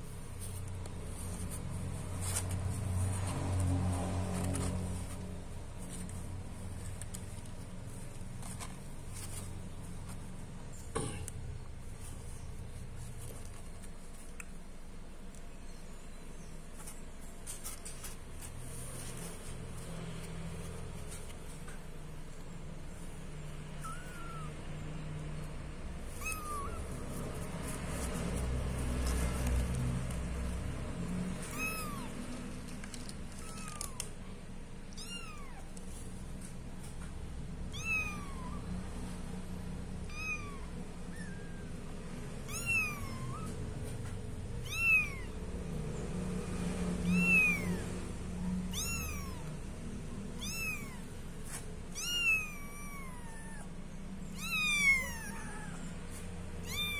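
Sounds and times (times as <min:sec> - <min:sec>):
kittens mewing: 0:23.6 - 0:36.1, 0:37.7 - 0:38.8, 0:40.0 - 0:41.8, 0:42.5 - 0:45.5, 0:47.0 - 0:56.9.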